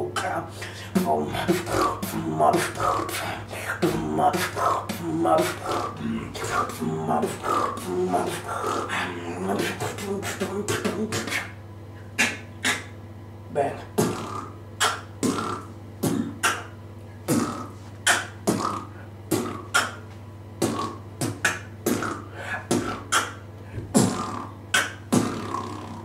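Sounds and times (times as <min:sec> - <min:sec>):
person beatboxing: 0:00.0 - 0:26.0.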